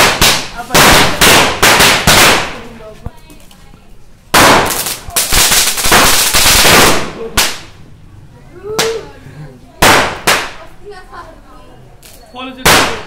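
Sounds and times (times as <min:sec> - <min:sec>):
firecrackers cracking rapidly: 0:00.0 - 0:03.6, 0:04.2 - 0:07.8, 0:09.8 - 0:10.7, 0:12.0 - 0:13.0.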